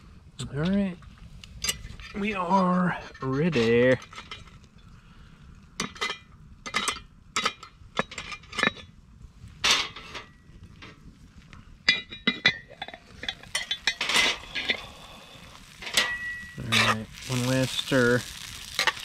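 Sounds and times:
metal pot clinking and clanking: 11.9 - 14.8, 15.8 - 16.6.

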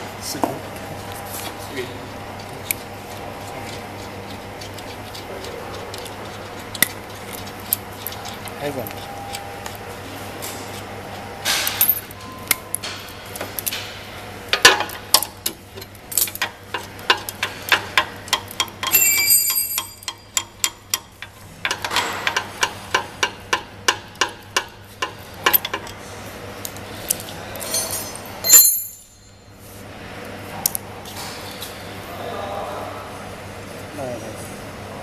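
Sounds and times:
brief metallic rings: 27.8 - 29.4.

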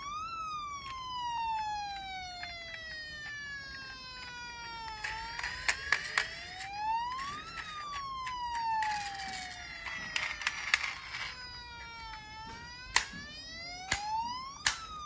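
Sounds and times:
siren wailing: 0.0 - 15.0
toy car parts clicking: 0.8 - 11.4, 13.9 - 14.9.

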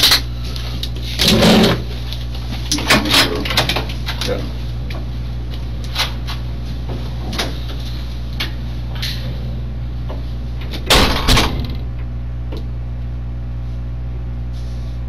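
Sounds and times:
low electrical hum: 0.0 - 15.0
door latching shut: 10.8 - 11.8.

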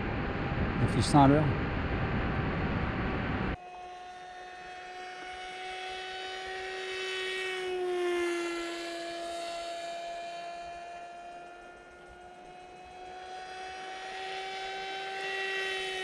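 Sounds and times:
loud wind rush: 0.0 - 3.6
electric motor and propeller whine: 0.0 - 16.0.

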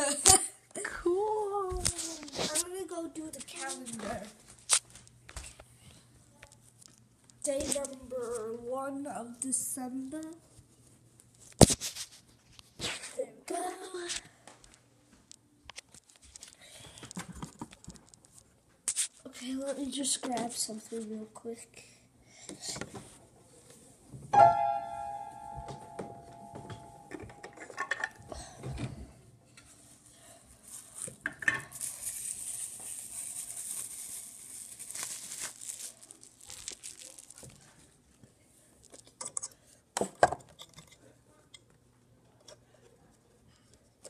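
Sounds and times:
struck object ringing tone: 24.4 - 27.4.

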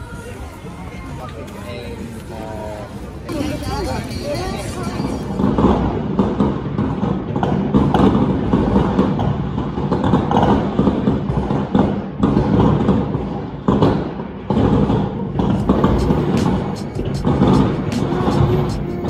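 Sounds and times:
fireworks bangs and crackles: 5.3 - 19.0.

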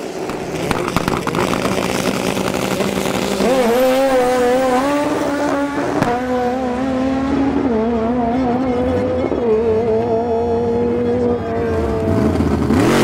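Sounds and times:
drag racing car engine revving: 0.0 - 13.0
sharp crack: 0.1 - 3.4.

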